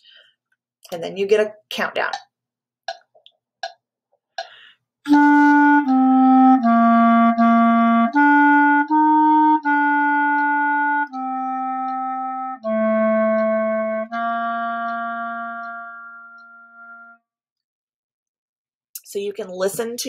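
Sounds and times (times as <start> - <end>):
clarinet playing held notes: 5.1 - 17.2
metronome clicks: 8.1 - 17.2.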